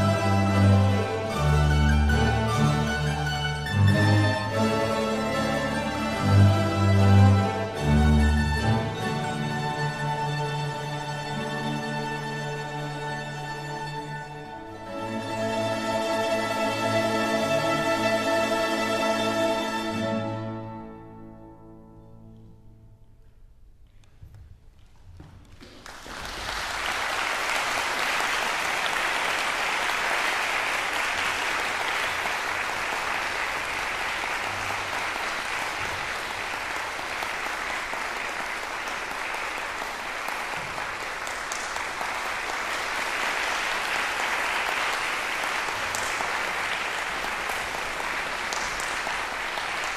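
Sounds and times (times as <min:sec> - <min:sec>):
audience applause: 0:25.4 - 0:49.9.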